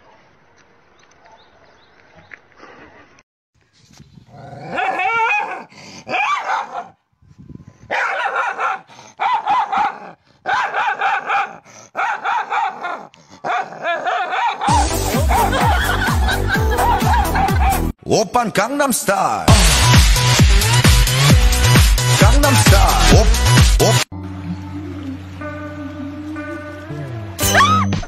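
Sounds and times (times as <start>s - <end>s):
dog yelping: 4.7s - 6.9s, 7.9s - 14.8s
loud music with heavy beat: 14.7s - 17.9s, 19.5s - 24.1s.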